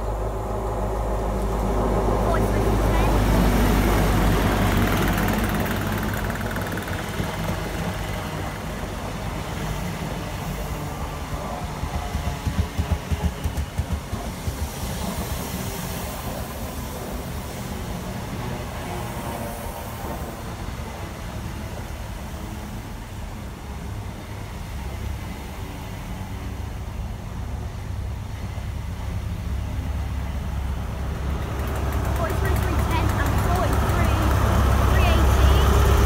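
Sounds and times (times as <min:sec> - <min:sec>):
train wheels rumbling on rail: 0:00.0 - 0:36.0
wheel clatter over rail joints: 0:30.9 - 0:35.0.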